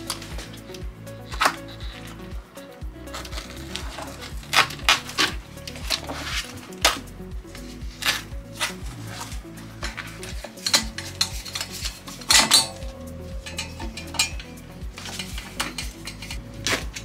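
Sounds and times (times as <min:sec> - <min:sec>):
background music with steady beat: 0:00.0 - 0:17.0
knife cutting vinyl: 0:03.2 - 0:07.0, 0:08.0 - 0:09.3.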